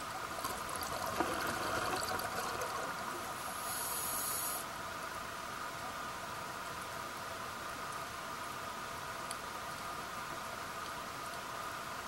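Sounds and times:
steady faint hiss: 0.0 - 12.0
exhaled air bubbling underwater: 0.2 - 3.6
regulator inhalation hiss: 3.4 - 4.7.

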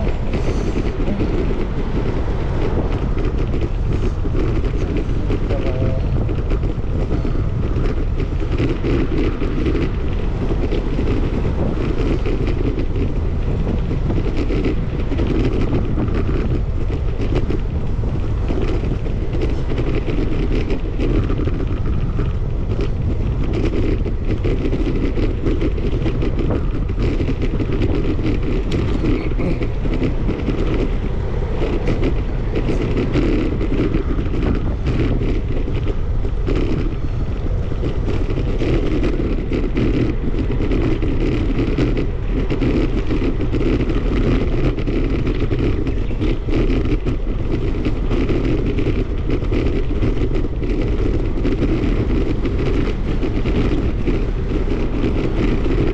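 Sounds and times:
wind buffeting microphone: 0.0 - 55.9.

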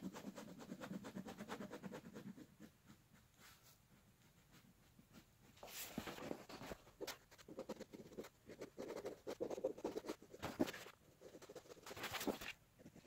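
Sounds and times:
pen scratching on paper: 0.0 - 13.0
paper rustling: 5.6 - 7.6, 10.4 - 12.6.

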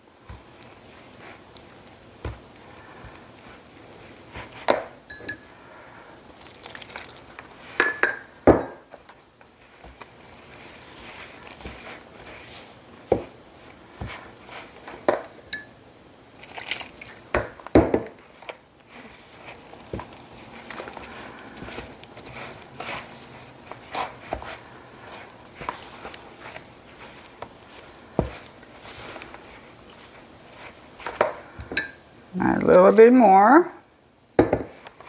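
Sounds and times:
spoon scraping dough in bowl: 18.2 - 32.0.

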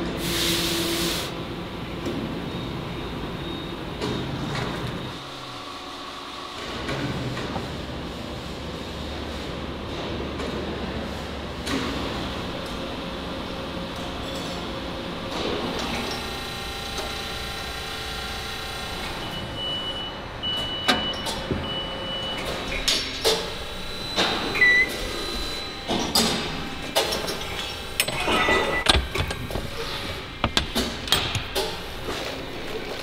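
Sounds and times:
machine hum with fixed tones: 0.8 - 33.0
metal clanks and knocks: 25.9 - 32.2.

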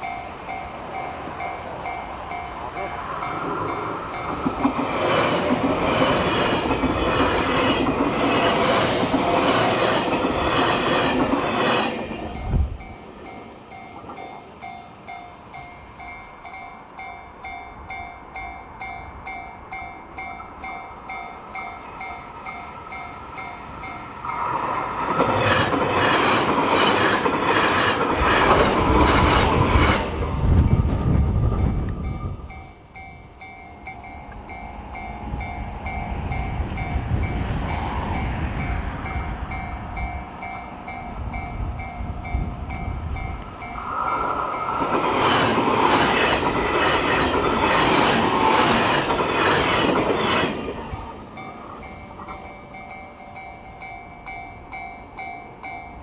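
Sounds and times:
crossing warning bell: 0.0 - 10.4, 11.0 - 29.4, 31.6 - 56.0
train wheels clattering: 2.0 - 14.8.

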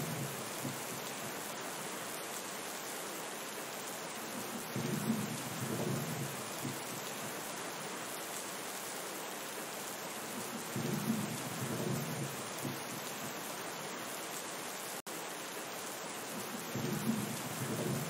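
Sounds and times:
heavy rain hissing: 0.0 - 18.0
low rolls of thunder: 4.4 - 7.0, 10.6 - 13.0, 16.4 - 18.0.

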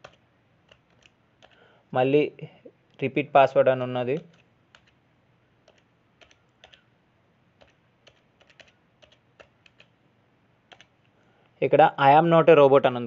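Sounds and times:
typing on computer keyboard: 0.0 - 1.7, 4.1 - 5.0, 5.6 - 6.9, 7.6 - 10.0, 10.7 - 11.1.

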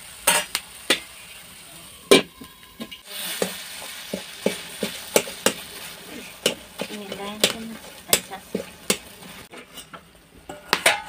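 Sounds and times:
frying sizzle: 0.0 - 11.0
spatula scraping and clinking: 4.1 - 11.0
spatula knocking on metal pan: 4.2 - 5.6, 6.4 - 9.1.

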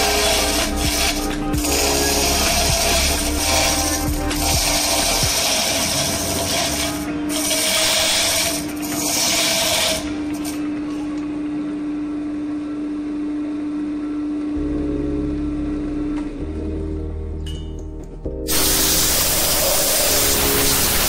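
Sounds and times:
lathe motor humming: 0.0 - 10.6, 18.5 - 21.0
lathe tool scraping wood: 0.0 - 10.6, 18.5 - 21.0.

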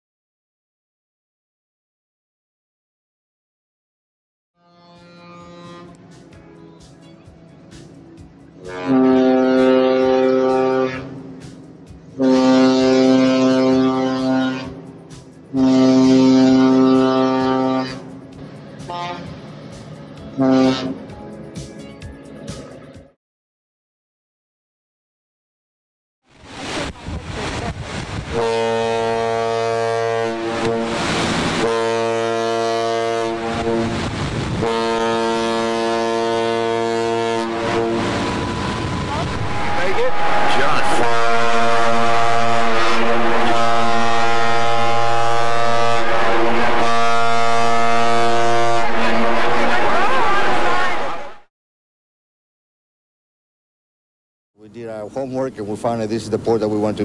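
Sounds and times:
ship's horn blasts: 4.6 - 6.1, 8.5 - 19.5, 20.3 - 21.1, 27.4 - 51.5.

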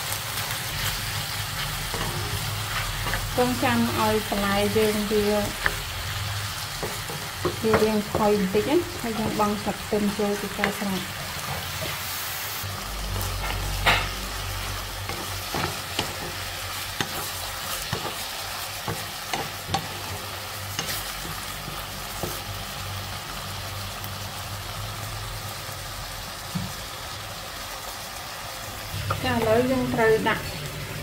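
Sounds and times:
food sizzling in a wok: 0.0 - 31.0
spatula knocking and scraping pan: 6.7 - 9.7, 10.3 - 12.0, 15.0 - 22.5.

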